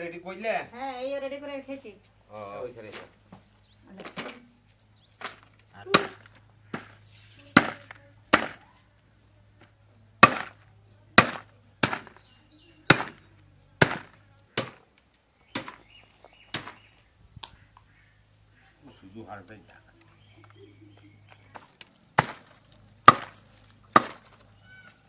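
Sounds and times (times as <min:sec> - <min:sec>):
cleaver chopping bone on wood: 0:05.2 - 0:06.9, 0:07.6 - 0:08.6, 0:10.2 - 0:10.6, 0:11.2 - 0:12.3, 0:12.9 - 0:13.2, 0:13.8 - 0:14.8, 0:15.5 - 0:15.8, 0:22.2 - 0:24.4.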